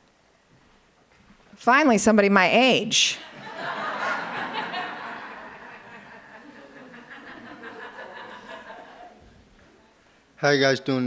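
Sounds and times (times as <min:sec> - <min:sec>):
audience laughing: 0:03.2 - 0:09.4.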